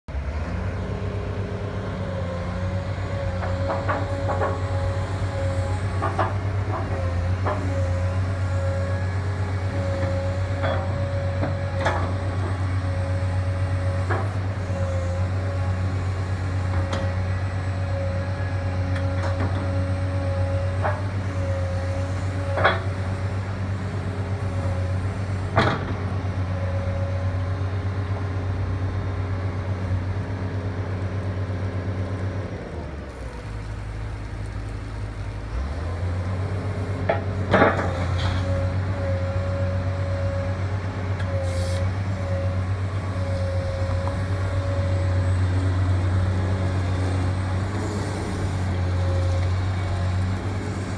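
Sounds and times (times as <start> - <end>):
excavator diesel engine running: 0.1 - 50.9
hydraulic whine: 41.2 - 50.9.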